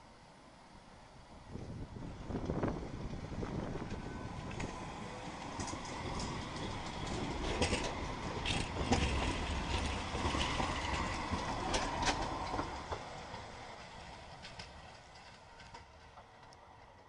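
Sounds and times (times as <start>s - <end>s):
electric tram passing: 0.0s - 17.0s
wheels clicking over track: 2.4s - 17.0s.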